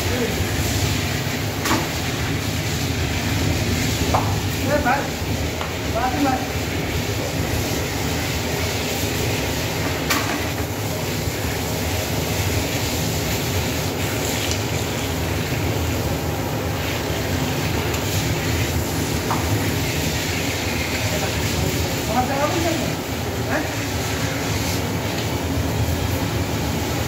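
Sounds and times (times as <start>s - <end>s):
washing machine rumbling and rattling: 0.0s - 27.0s.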